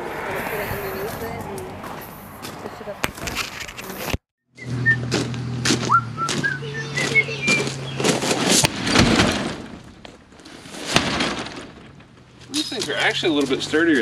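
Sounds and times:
birds chirping: 5.8 - 8.5.

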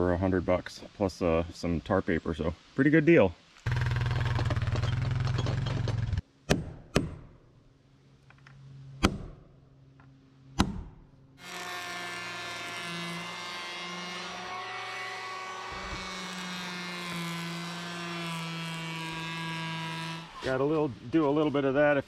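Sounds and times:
electric planer whining: 11.4 - 20.5.

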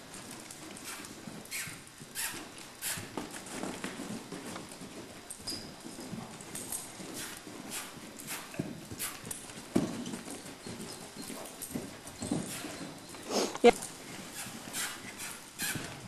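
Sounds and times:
muffled hoofbeats on dirt: 0.0 - 16.0
short hissing noises: 13.2 - 13.7.

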